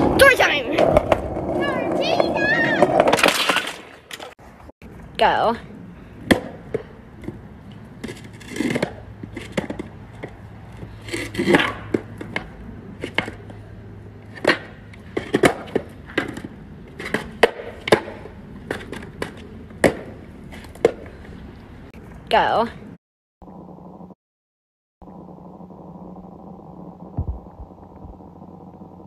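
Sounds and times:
skateboard clacking on concrete: 0.0 - 4.3, 6.2 - 13.6, 14.2 - 21.2.

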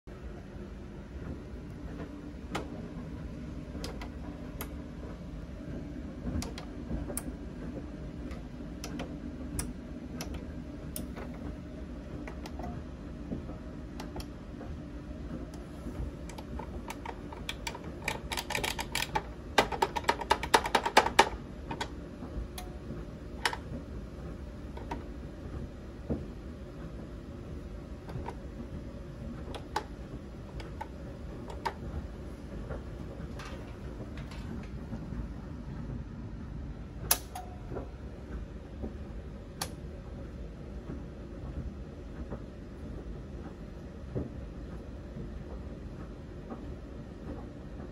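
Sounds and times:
low steady hum: 0.1 - 47.9
smart switch relays clicking: 1.2 - 5.1, 6.2 - 23.9, 24.6 - 25.2, 28.0 - 28.5, 29.4 - 35.1, 37.1 - 38.0, 38.8 - 39.9
circuit breaker switch clicks: 8.2 - 11.4, 37.1 - 37.9.

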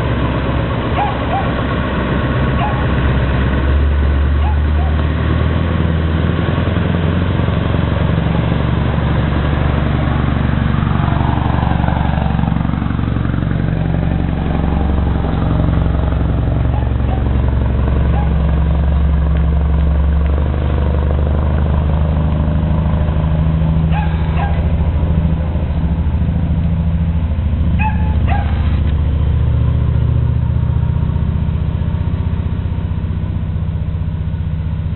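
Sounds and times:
diesel truck engine driving past: 0.0 - 34.9.

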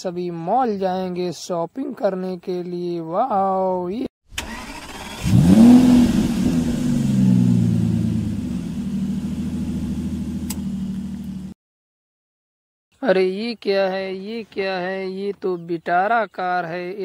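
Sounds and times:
car engine revving and idling: 4.5 - 11.6.

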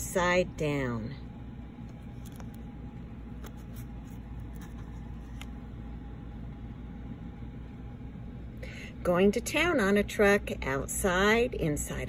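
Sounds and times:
low room hum: 0.0 - 12.0
book page turning clicks: 1.9 - 2.6, 3.4 - 5.6.

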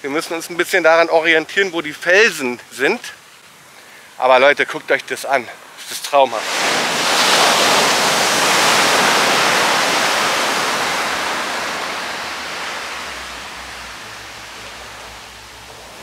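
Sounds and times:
wave breaking on rocky shore: 6.3 - 16.0.

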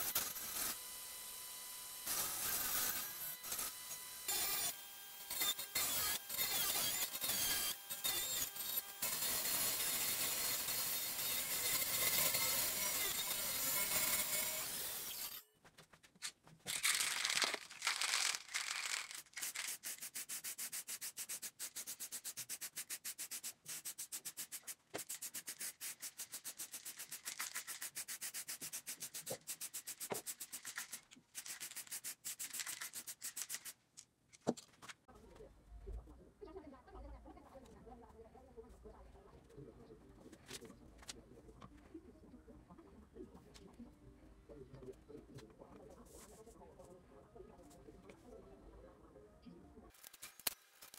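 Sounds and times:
aerosol spray can hissing: 19.4 - 33.7.

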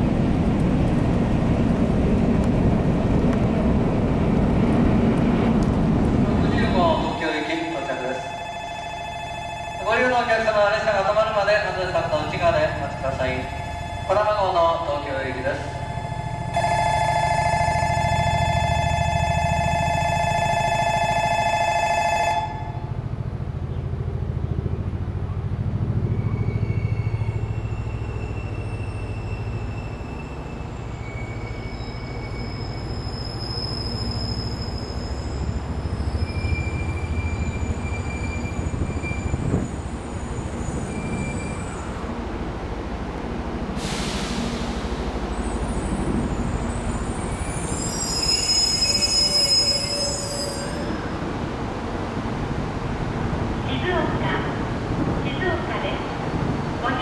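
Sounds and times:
train rumbling: 0.0 - 57.0
high wheel squeals: 25.8 - 42.0, 45.3 - 51.2.

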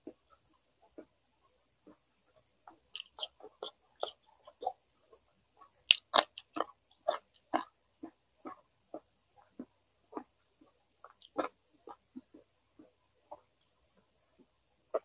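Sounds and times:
crunchy chewing and biting: 2.9 - 4.8, 5.9 - 8.6, 9.4 - 13.5.

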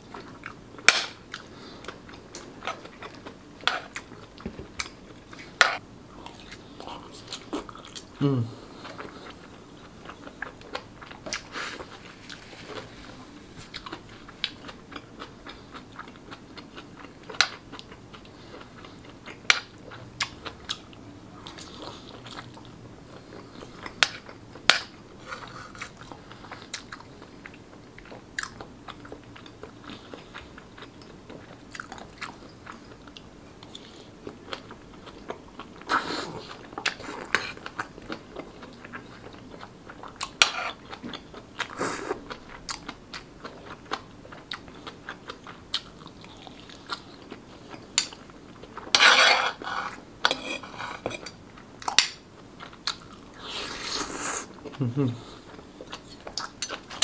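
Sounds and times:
chewing soft food: 0.0 - 57.0.

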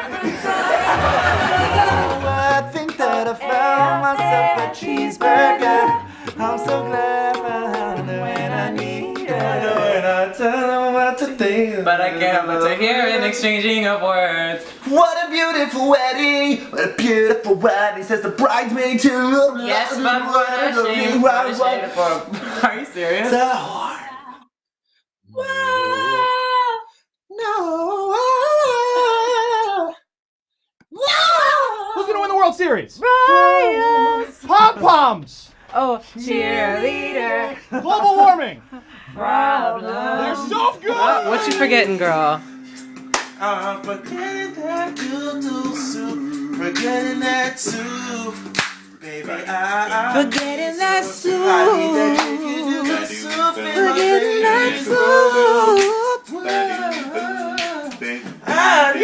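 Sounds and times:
low bass voice: 0.0 - 2.8
a cappella group singing: 0.0 - 13.6, 27.4 - 30.0, 35.7 - 37.8, 38.6 - 59.0.

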